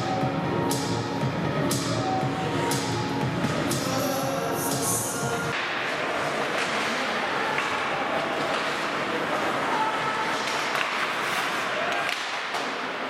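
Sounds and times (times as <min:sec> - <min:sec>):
hockey sticks and puck clacking: 0:05.5 - 0:13.0
skates scraping on ice: 0:05.8 - 0:13.0.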